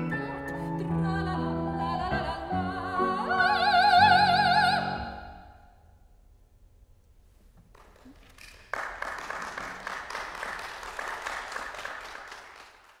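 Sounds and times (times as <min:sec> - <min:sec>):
audience applause: 0:07.7 - 0:13.0.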